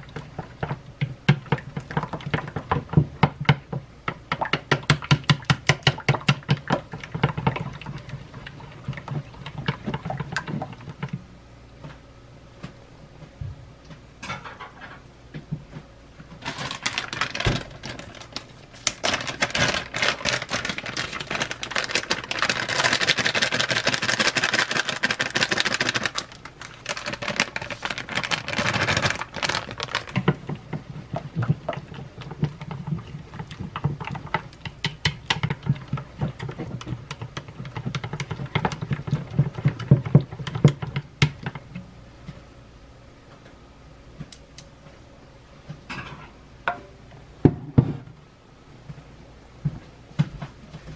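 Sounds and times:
chopsticks whisking batter in bowl: 0.0s - 11.2s, 29.7s - 41.8s.

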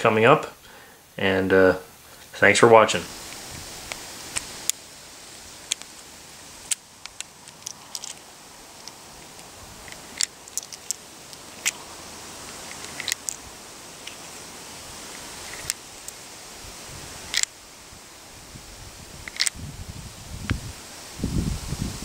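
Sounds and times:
background hiss: 0.0s - 22.0s
revolver metallic clicks: 12.5s - 13.4s, 19.3s - 19.6s.

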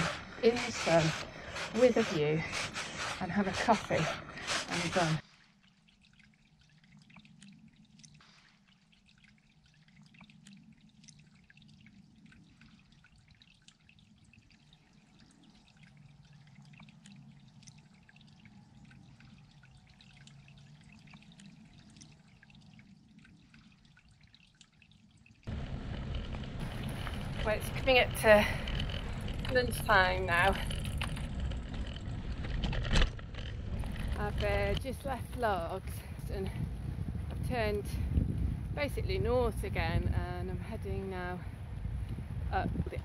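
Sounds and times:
faint ticks: 6.0s - 25.0s
low hum: 25.4s - 43.0s.

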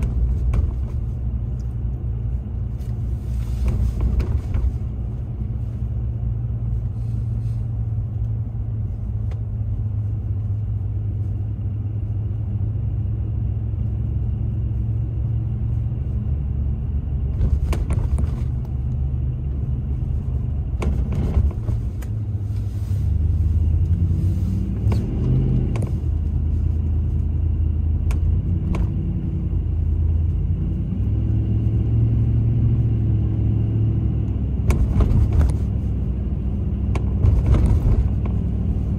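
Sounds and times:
car engine and road rumble: 0.0s - 38.9s.

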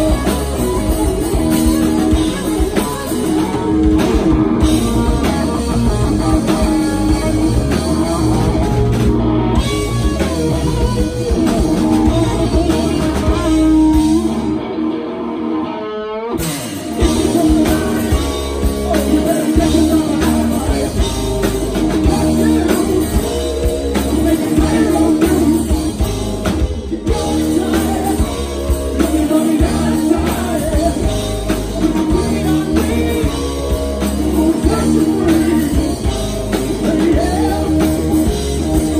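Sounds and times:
live rock band: 0.0s - 38.9s
person singing: 11.3s - 14.7s, 16.8s - 38.9s.

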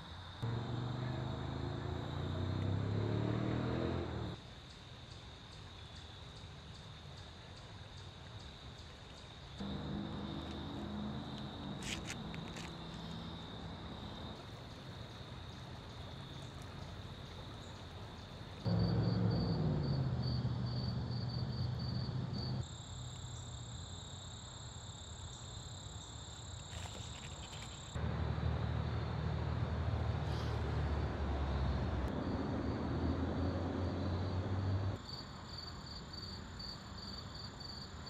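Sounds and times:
road traffic rumble: 0.0s - 4.4s, 9.6s - 22.7s, 27.4s - 37.0s
high insect trill: 0.0s - 29.6s
crickets chirping: 0.0s - 38.0s.

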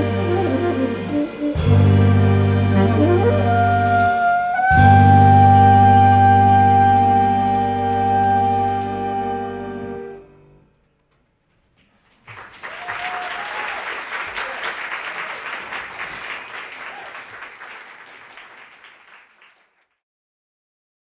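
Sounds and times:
audience applause: 12.0s - 19.9s.

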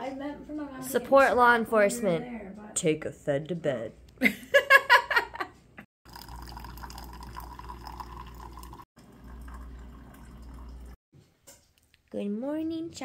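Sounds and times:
woman laughing: 4.2s - 5.6s
coffee maker hum: 6.1s - 11.0s
coffee pouring into mug: 6.1s - 11.0s.

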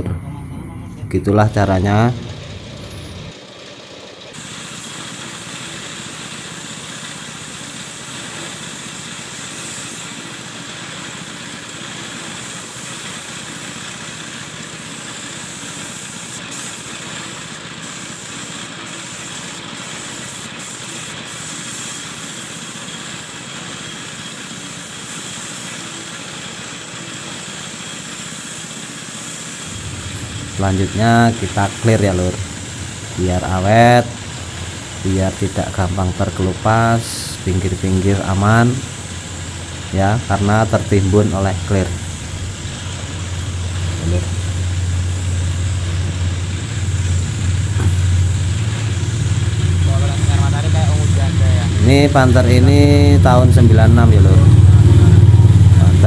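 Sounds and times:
spray gun hissing: 4.1s - 56.0s.

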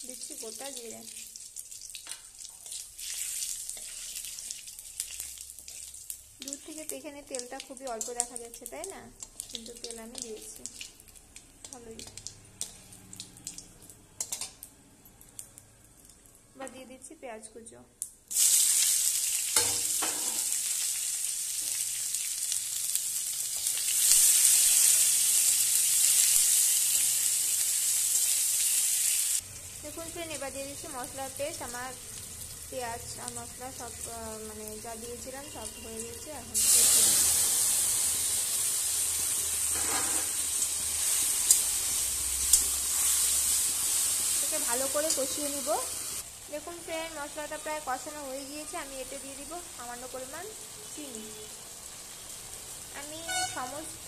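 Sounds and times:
onions sizzling in hot oil: 0.0s - 14.7s, 18.3s - 54.0s
spatula stirring: 1.2s - 13.0s.

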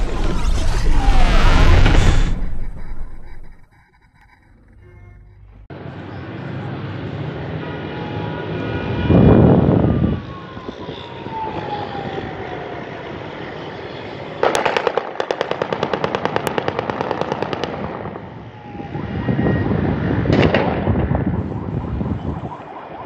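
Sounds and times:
sharp crack with rumble: 0.0s - 3.5s, 14.4s - 18.3s, 20.0s - 21.5s
street traffic noise: 3.9s - 23.0s.

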